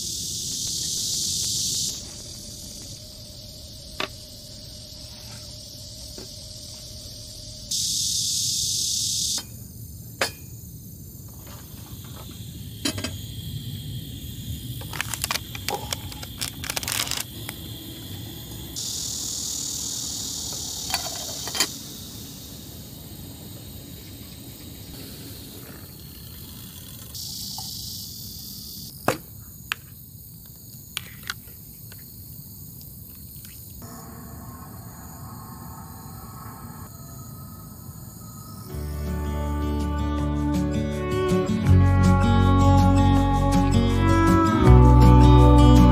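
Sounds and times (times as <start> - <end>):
gas stove hissing: 0.0 - 9.7, 17.2 - 28.9.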